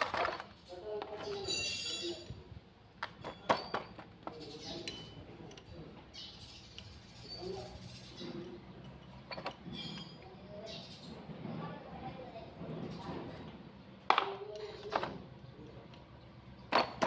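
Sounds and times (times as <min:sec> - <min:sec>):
hand tools clicking on metal: 0:04.8 - 0:05.7.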